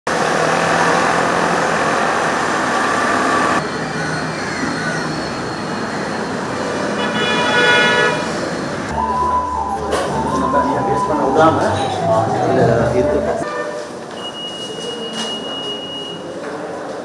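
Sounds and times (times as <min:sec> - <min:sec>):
city traffic rumble: 0:00.1 - 0:17.0
pitched tone with overtones: 0:08.9 - 0:13.5.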